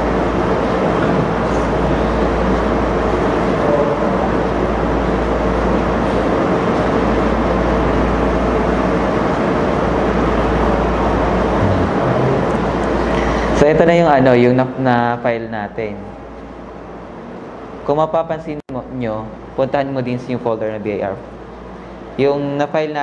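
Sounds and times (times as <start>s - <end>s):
low hum: 0.0s - 14.8s
room noise rush: 0.0s - 14.8s.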